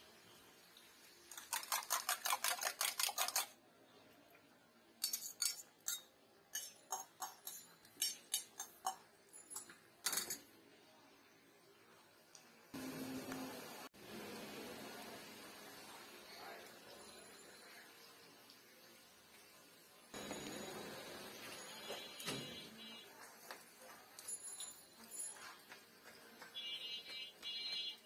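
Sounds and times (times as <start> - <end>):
spoon beating egg in metal mug: 1.3 - 3.6, 5.0 - 10.4.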